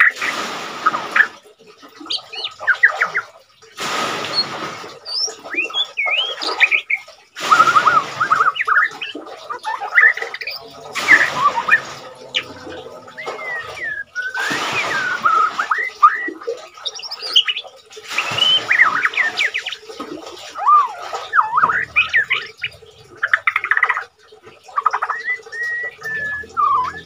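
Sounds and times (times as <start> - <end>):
bird singing varied song: 5.0 - 19.9, 20.6 - 24.1, 24.7 - 27.0.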